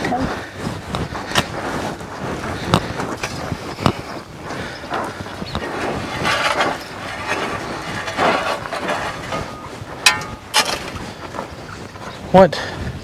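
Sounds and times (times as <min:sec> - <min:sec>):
footsteps on gravel: 0:00.0 - 0:13.0
rake dragged across gravel: 0:04.9 - 0:11.5.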